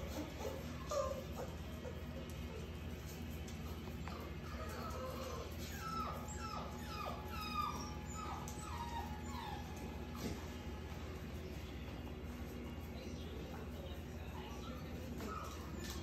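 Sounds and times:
puppies whimpering: 0.0 - 10.9, 14.2 - 16.0
steady low hum: 0.0 - 16.0.

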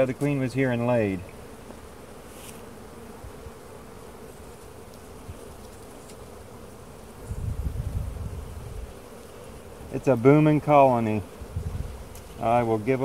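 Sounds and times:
honeybees humming: 0.0 - 13.0.

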